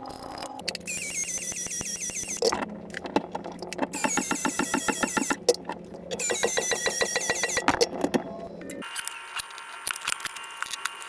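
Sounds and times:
expansion tool motor whirring: 0:06.2 - 0:07.6.

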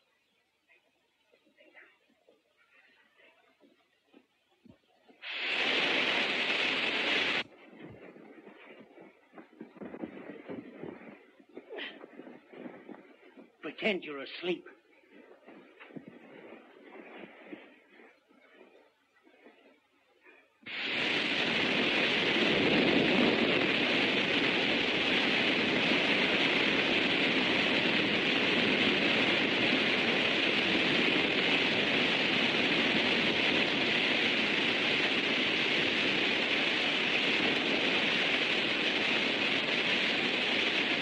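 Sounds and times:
gas hissing into air mattress: 0:05.2 - 0:07.5, 0:20.7 - 0:41.0.

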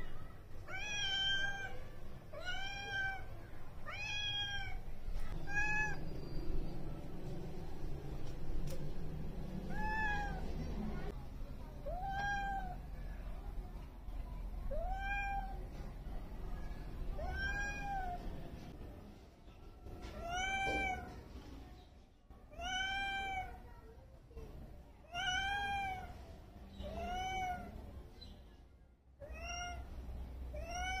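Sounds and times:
cat meowing: 0:00.6 - 0:06.3, 0:09.6 - 0:10.5, 0:11.8 - 0:12.8, 0:14.7 - 0:15.6, 0:17.2 - 0:18.2, 0:20.1 - 0:21.2, 0:22.5 - 0:23.6, 0:25.1 - 0:26.1, 0:26.8 - 0:27.8, 0:29.2 - 0:29.9, 0:30.5 - 0:31.0.

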